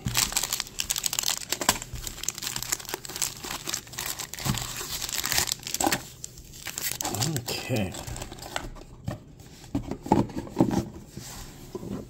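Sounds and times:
foil wrappers crinkling: 0.0s - 8.5s.

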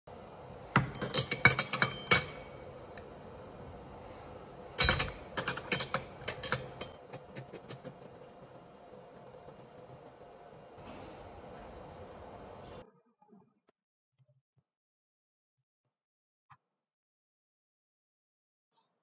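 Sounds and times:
metal jigger clinking in fixture: 0.8s - 3.0s, 4.8s - 8.0s.

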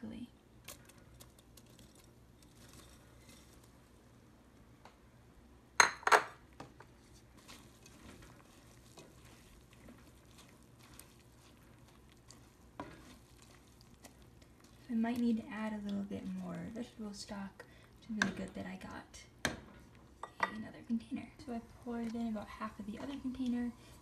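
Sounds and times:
wooden spoon scraping pot: 6.7s - 17.4s, 21.4s - 24.0s.

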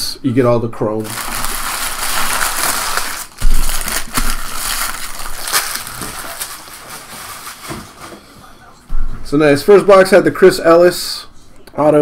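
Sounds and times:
crinkly packaging being crumpled: 1.0s - 8.2s.

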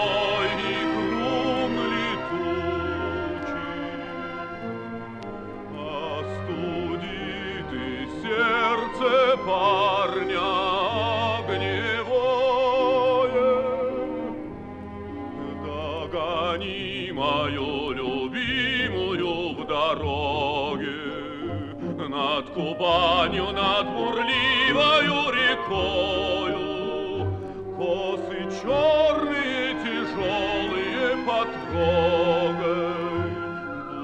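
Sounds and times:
orchestra playing: 0.0s - 34.0s.

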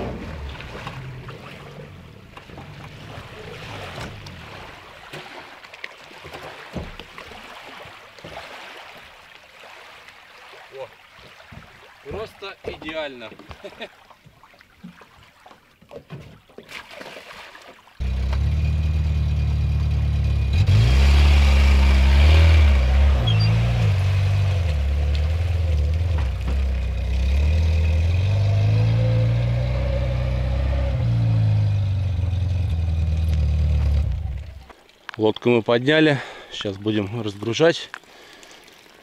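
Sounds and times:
engine revving: 18.0s - 34.5s.

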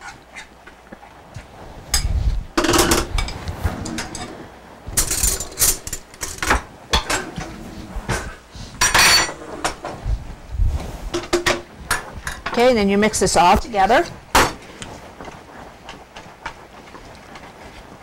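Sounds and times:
dishes and utensils clattering: 2.0s - 10.0s, 11.1s - 12.7s.

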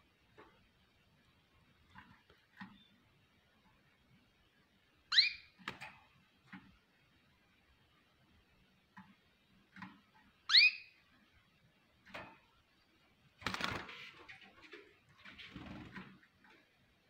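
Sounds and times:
canary chirp: 5.0s - 5.6s, 10.4s - 11.2s
bird wings fluttering: 13.4s - 14.3s, 15.3s - 16.2s.

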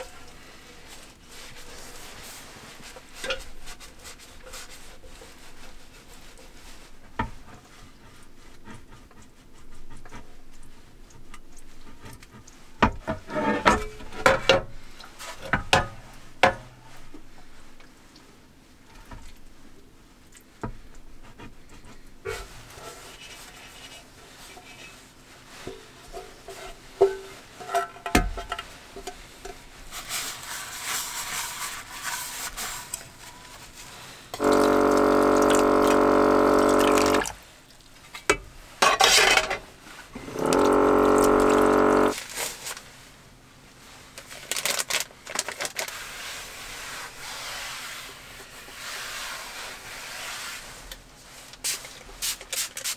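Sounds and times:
electric water pump running: 34.4s - 37.4s, 40.2s - 42.2s
running water: 34.4s - 37.8s, 40.2s - 42.2s.

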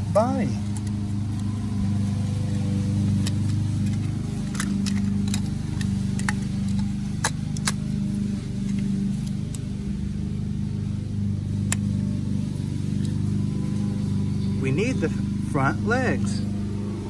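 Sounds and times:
low engine hum: 0.0s - 17.0s
plastic toy pieces clicking: 3.2s - 7.8s.

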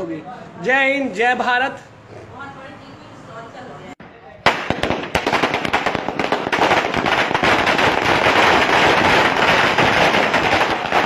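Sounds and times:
firecrackers crackling: 4.4s - 11.0s.

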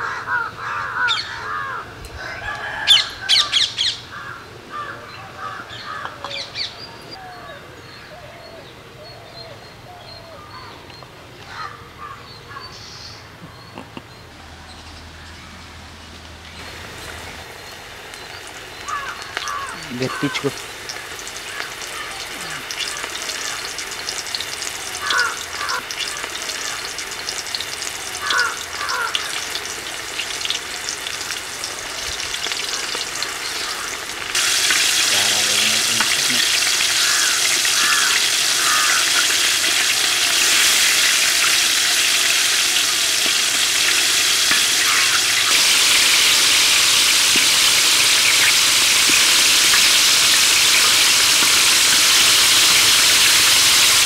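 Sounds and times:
chicken deep-frying in oil: 0.0s - 4.5s, 16.6s - 54.0s.

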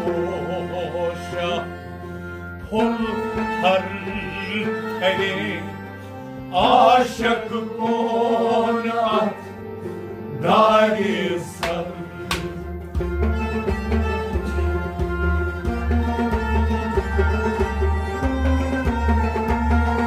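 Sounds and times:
man singing: 0.0s - 1.9s, 2.6s - 5.8s, 6.5s - 9.5s, 10.4s - 12.6s
harmonium drone: 0.0s - 20.0s
bowed sarangi: 12.0s - 20.0s.

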